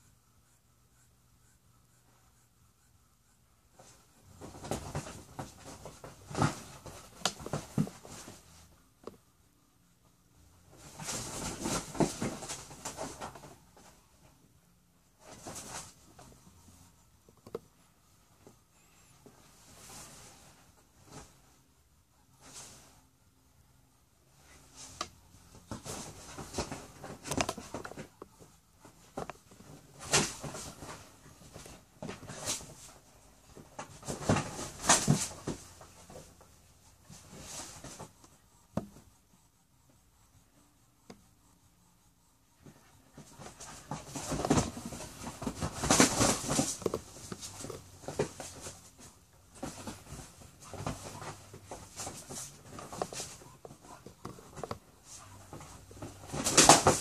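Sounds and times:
animals scuffling on leather couch: 0:03.8 - 0:08.7, 0:42.6 - 0:57.0.

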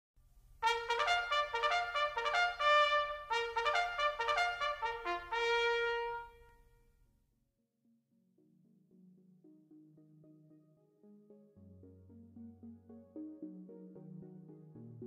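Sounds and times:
brass jingle: 0:00.6 - 0:06.7.

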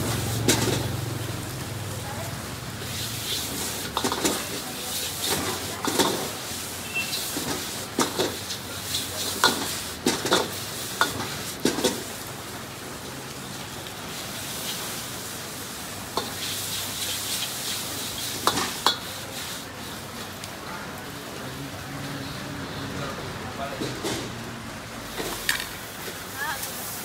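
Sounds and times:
steady sizzling: 0:00.0 - 0:27.0
metal ladle clanking against wok: 0:18.4 - 0:19.1.

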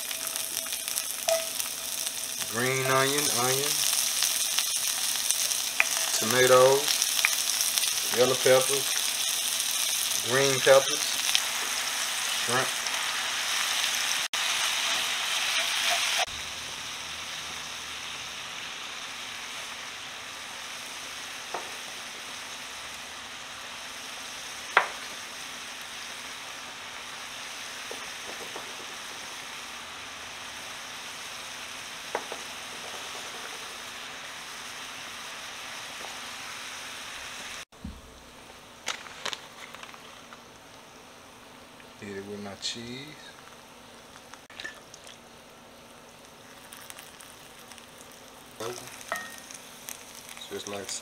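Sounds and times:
food sizzling in a skillet: 0:00.0 - 0:37.7, 0:45.8 - 0:51.0
spatula tapping a pan: 0:01.3 - 0:01.7.

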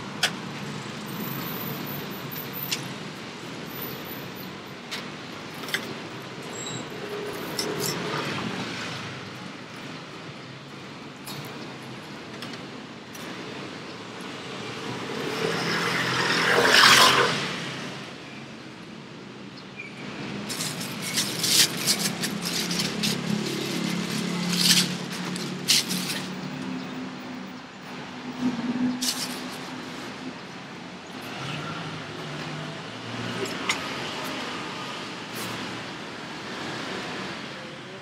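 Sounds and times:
sharp clicks and scrapes: 0:20.5 - 0:26.7, 0:29.0 - 0:30.0.

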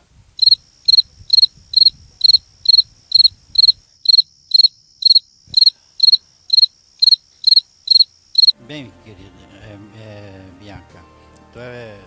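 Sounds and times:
cricket chirping: 0:00.4 - 0:08.6.

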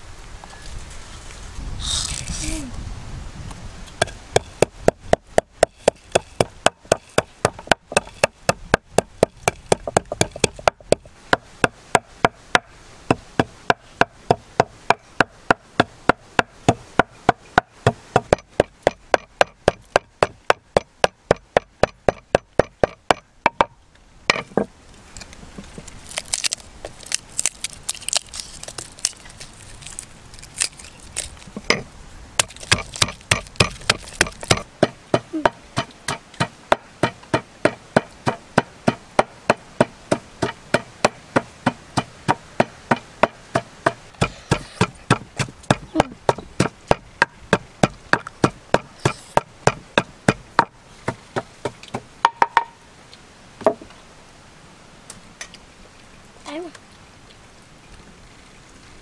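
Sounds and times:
pestle pounding in mortar: 0:04.0 - 0:23.7, 0:32.4 - 0:52.7.

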